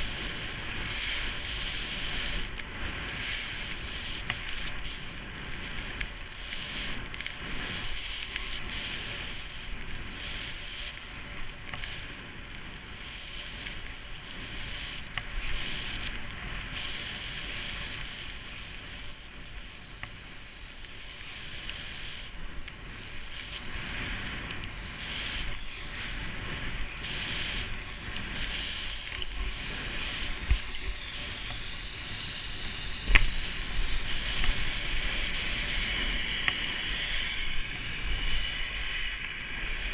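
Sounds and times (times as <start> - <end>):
skis hissing through snow: 0.0 - 39.9
wind rumble on microphone: 0.0 - 39.9.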